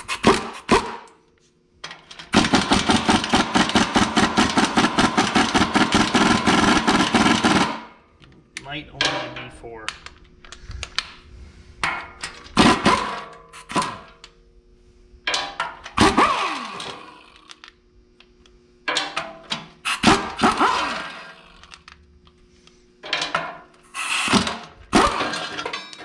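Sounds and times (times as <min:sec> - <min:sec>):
pneumatic impact wrench: 0:00.0 - 0:01.2, 0:02.2 - 0:07.9, 0:12.6 - 0:14.2, 0:15.6 - 0:17.6, 0:19.5 - 0:21.9, 0:23.2 - 0:26.0.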